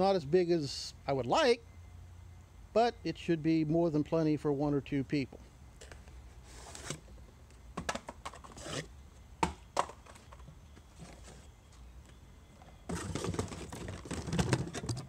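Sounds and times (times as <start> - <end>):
cardboard scraping and rustling: 5.8 - 7.1, 8.3 - 8.9, 10.1 - 11.5, 12.8 - 15.0.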